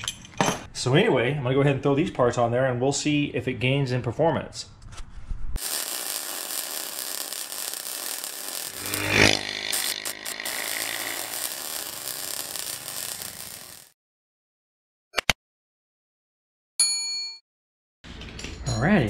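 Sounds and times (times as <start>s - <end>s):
power tool engine running: 6.1s - 13.9s.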